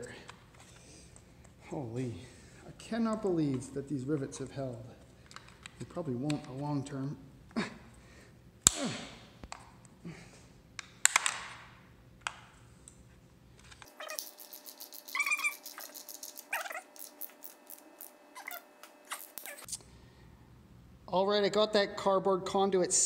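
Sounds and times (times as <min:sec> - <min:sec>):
short squeaks: 0:13.9 - 0:19.7.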